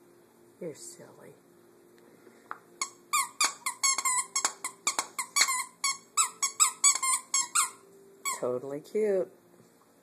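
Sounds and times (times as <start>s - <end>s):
squeaky toy squeaking: 2.8s - 8.5s.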